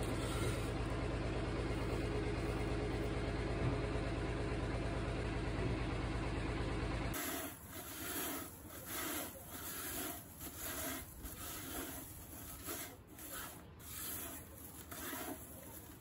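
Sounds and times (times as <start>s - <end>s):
leaves rubbed against metal pan: 7.2s - 16.0s.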